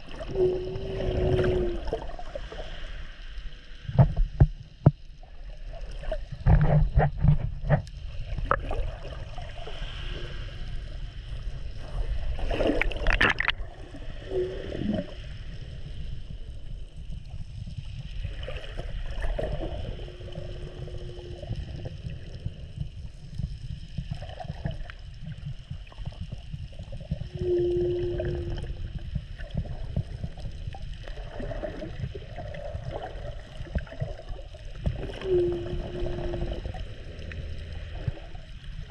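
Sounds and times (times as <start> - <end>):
underwater water rumble: 0.0 - 38.9
knocks and sloshes: 12.2 - 13.9
short low hums: 27.3 - 29.2.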